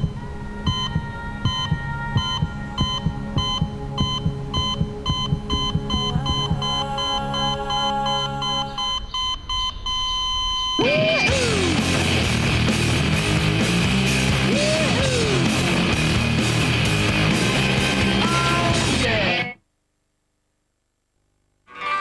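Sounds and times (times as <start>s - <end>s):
low heartbeat thump: 0.0s - 7.1s
steady musical drone: 0.0s - 8.8s, 11.3s - 19.4s
heart monitor beeps: 0.0s - 11.2s
loud rock music: 10.8s - 19.6s.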